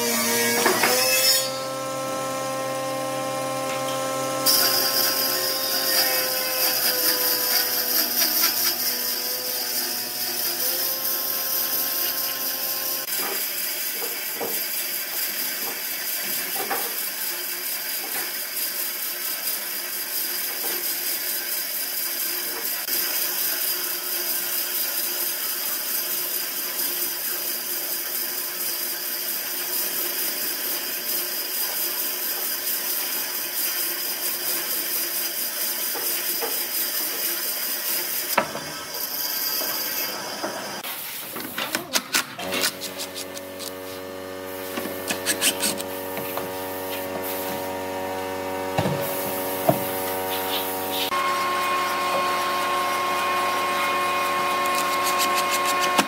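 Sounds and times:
bandsaw blade hissing through log: 4.4s - 13.2s, 42.4s - 47.8s.

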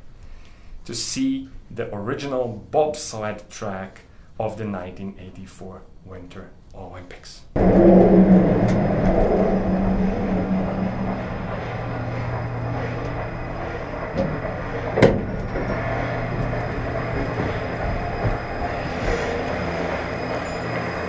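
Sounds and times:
moving vehicle rumble: 7.6s - 21.0s.

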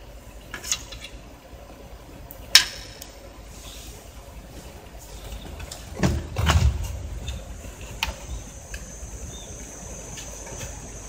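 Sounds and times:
faint high whine: 3.0s - 11.0s
handling knocks: 5.2s - 8.5s.

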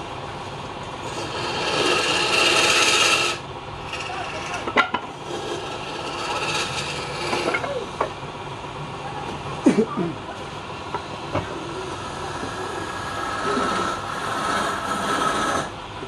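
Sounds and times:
lathe running hum: 0.0s - 9.6s, 10.4s - 16.0s
cloth rasping on spinning wood: 1.0s - 7.7s, 12.8s - 15.7s.

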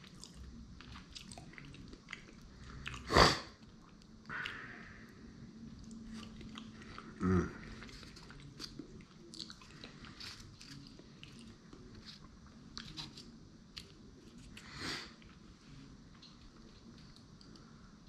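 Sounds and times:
person chewing food: 0.0s - 4.6s, 5.6s - 15.4s.

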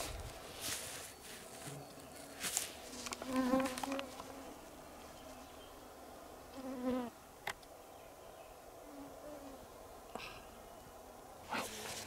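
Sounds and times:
rustle: 0.0s - 12.0s
flying insect buzzing: 3.0s - 4.6s.

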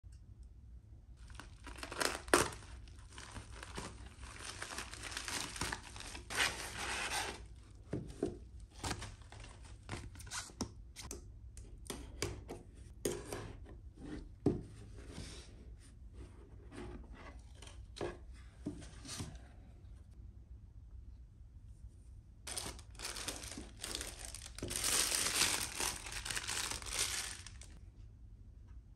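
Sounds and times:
plastic mailer bag ripping: 1.2s - 7.3s, 22.5s - 27.8s
plastic wrapping rustling: 1.2s - 7.8s, 8.7s - 10.5s, 22.5s - 27.8s
cardboard packaging handled: 1.2s - 10.6s, 22.5s - 27.8s.

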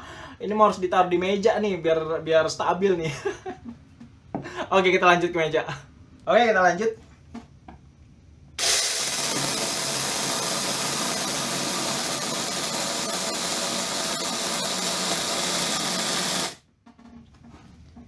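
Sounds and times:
cordless chainsaw cutting wood: 8.6s - 16.6s.

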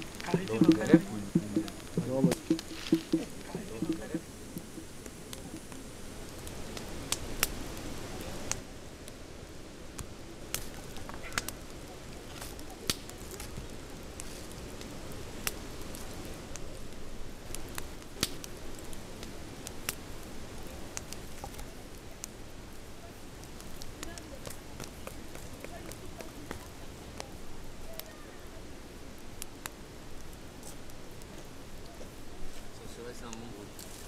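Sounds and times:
campfire crackling and popping: 0.0s - 34.0s
low background noise: 0.0s - 34.0s.

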